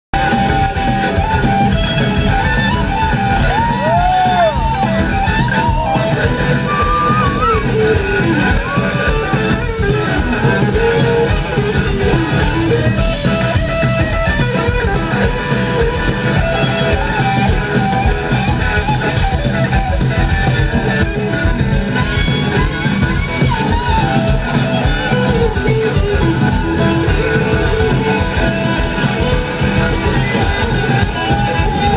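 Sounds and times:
blues-rock band playing: 0.1 - 31.9
gliding lead guitar line: 0.1 - 31.9.

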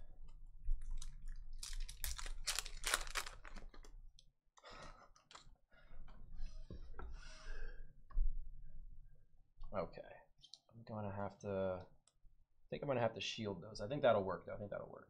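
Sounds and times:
foil wrapper crinkling: 0.9 - 3.9
cards rustling and clicking: 1.6 - 3.9.

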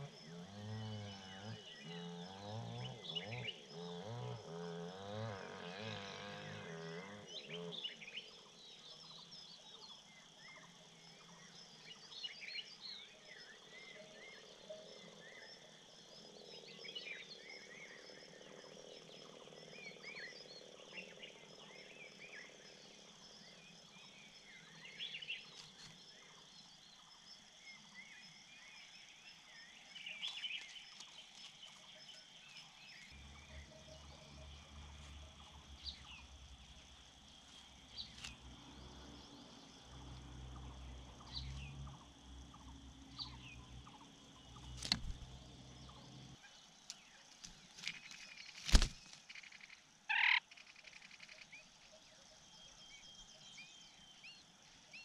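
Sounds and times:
small birds chirping: 15.2 - 55.0.

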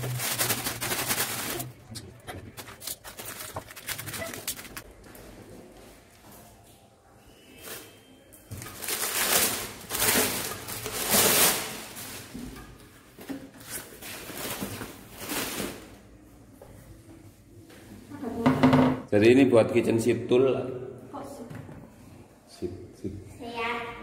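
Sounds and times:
paper and bubble wrap crinkling: 0.0 - 4.9, 7.6 - 12.4, 13.6 - 16.0.

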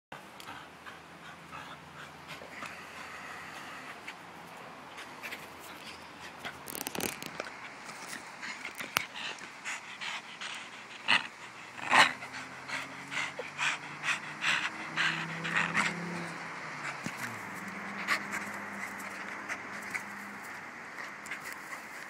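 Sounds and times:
dog panting hard: 0.2 - 6.7, 7.5 - 22.0.

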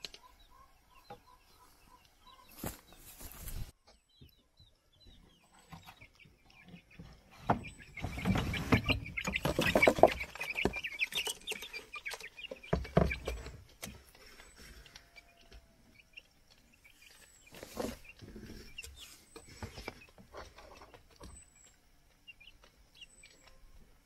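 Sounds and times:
chickens clucking: 0.0 - 24.0
rustling: 2.5 - 3.7.

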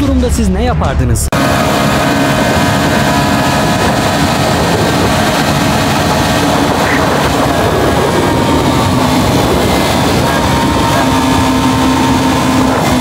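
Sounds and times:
wind noise rushing: 0.2 - 13.0
motorcycle engine drone: 1.3 - 13.0.

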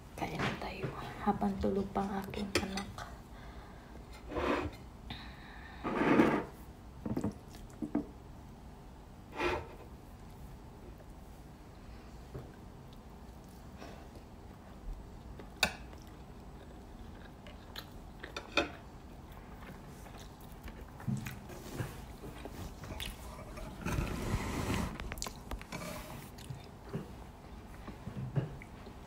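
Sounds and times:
person chewing: 15.2 - 21.5, 22.1 - 23.7, 25.0 - 26.8
rustling and handling noise: 19.4 - 29.0.

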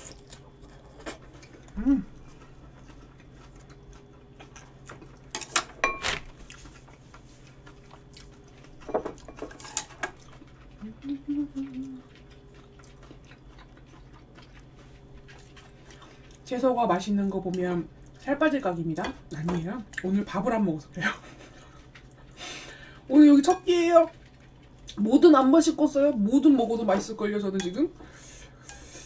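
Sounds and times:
steady low hum: 0.0 - 29.0
person humming: 1.7 - 2.2, 10.8 - 12.1.

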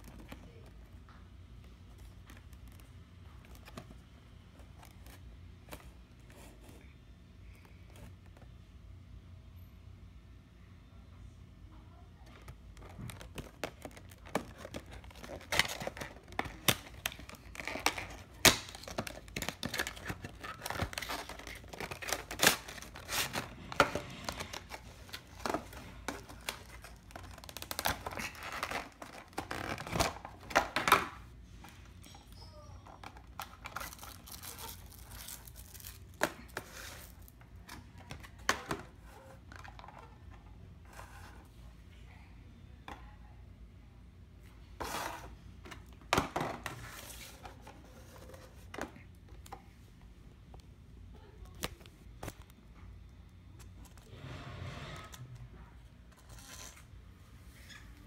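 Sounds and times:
plastic wrap crinkling and tearing: 12.8 - 30.4, 33.3 - 37.3.

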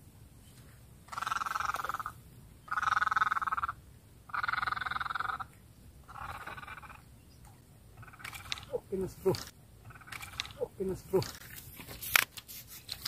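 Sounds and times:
frog rasping calls: 1.1 - 7.1, 7.9 - 11.2.

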